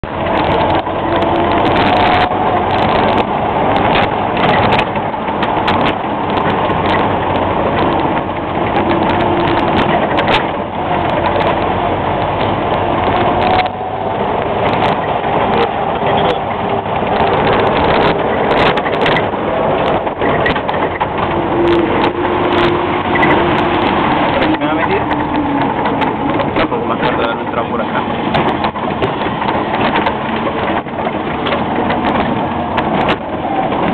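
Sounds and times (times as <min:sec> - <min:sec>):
knocks and rattles in cab: 0:00.0 - 0:33.9
vehicle engine and drivetrain noise: 0:00.0 - 0:33.9.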